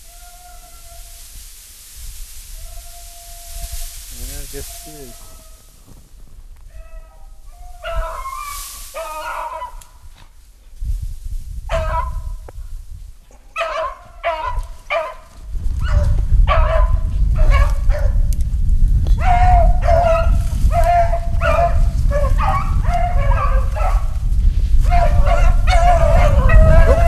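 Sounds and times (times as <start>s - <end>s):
beagles baying: 2.6s - 5.8s, 6.7s - 10.0s, 11.7s - 12.3s, 13.5s - 15.3s, 19.2s - 24.2s, 24.8s - 27.0s.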